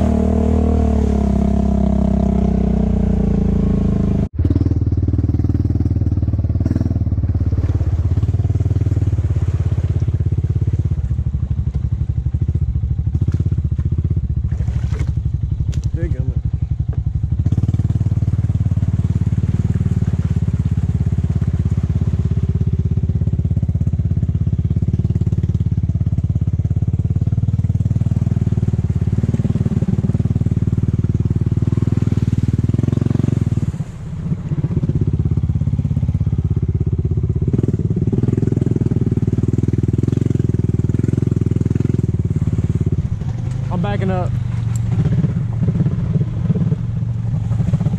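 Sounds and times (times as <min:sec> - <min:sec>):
atv engine running: 0:00.0 - 0:47.9
driving through mud and water: 0:00.0 - 0:47.9.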